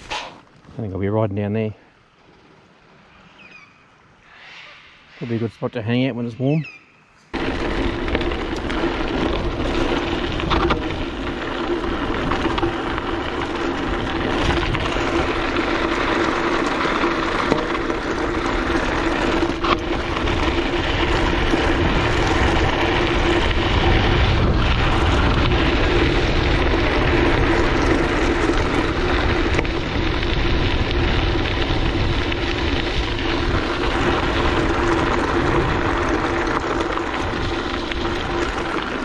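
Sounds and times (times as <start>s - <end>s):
bike tyres rolling on dirt: 0.0s - 39.0s
wind rushing over microphone: 17.8s - 39.0s.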